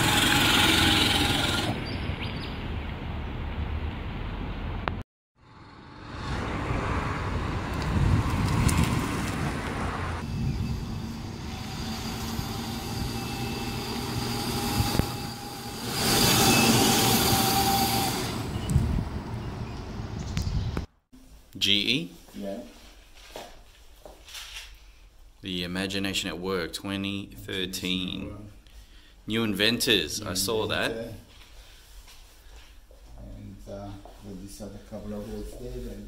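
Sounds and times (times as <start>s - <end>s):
small air motor vehicles passing: 0.0s - 20.8s.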